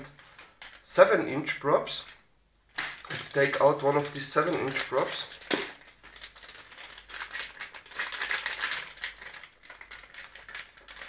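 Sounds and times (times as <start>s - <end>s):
plastic packaging crinkling: 0.0s - 1.0s, 2.0s - 11.0s.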